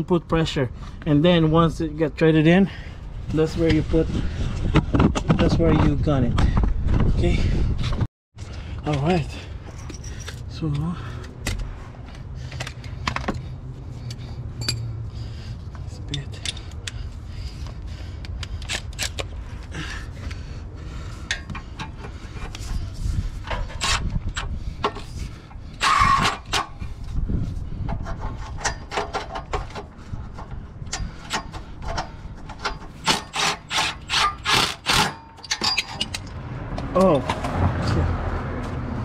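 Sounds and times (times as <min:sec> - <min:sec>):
ratchet clicking and rasping: 0:28.0 - 0:36.3.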